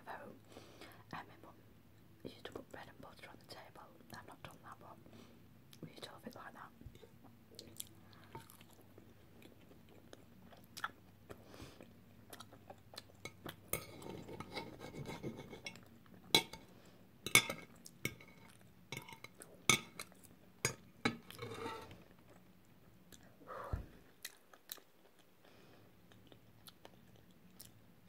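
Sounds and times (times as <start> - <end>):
knife scraping on plate: 13.8 - 15.8, 21.1 - 22.0
cutlery clinking on plate: 17.3 - 18.4, 20.7 - 21.9.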